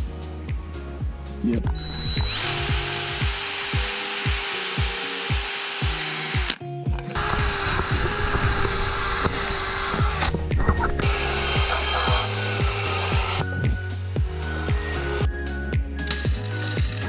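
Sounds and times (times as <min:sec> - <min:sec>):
drill with wire brush scrubbing metal: 0:01.8 - 0:15.3.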